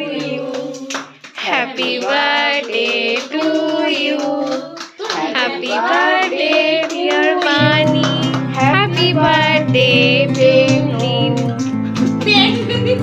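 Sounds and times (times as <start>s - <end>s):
people singing: 0.0s - 11.5s
hand clapping: 0.1s - 13.0s
low instrumental music: 7.6s - 13.0s.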